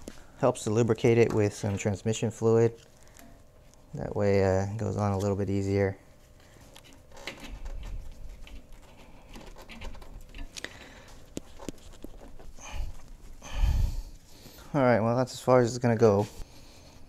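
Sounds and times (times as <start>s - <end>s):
rubber hose rubbing and squeaking: 6.8s - 13.4s.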